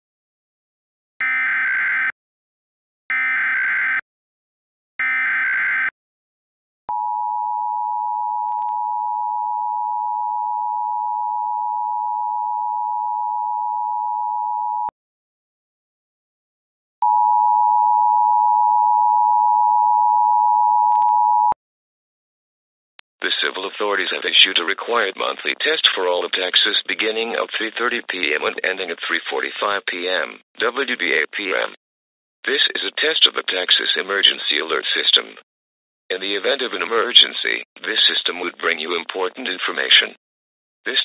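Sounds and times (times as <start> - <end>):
buzzing digital data bursts: 1.2 - 2.1, 3.1 - 4.0, 5.0 - 5.9.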